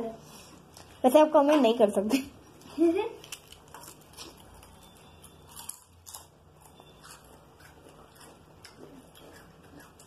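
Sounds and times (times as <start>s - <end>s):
chewing potato chips: 2.6s - 10.0s.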